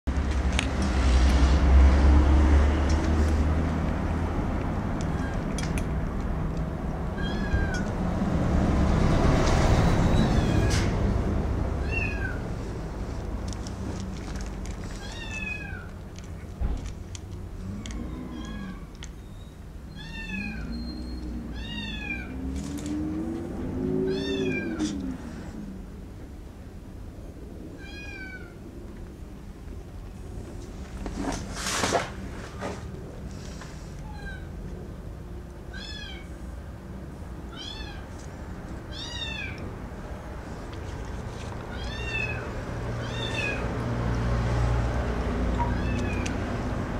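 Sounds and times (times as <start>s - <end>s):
cat meowing: 7.1s - 7.9s, 10.1s - 10.9s, 11.8s - 12.5s, 15.0s - 16.0s, 19.9s - 20.8s, 21.5s - 22.4s, 24.0s - 25.1s, 27.8s - 28.6s, 34.0s - 34.6s, 35.7s - 36.3s, 37.5s - 38.1s, 38.9s - 39.7s, 41.7s - 43.7s, 45.6s - 46.4s.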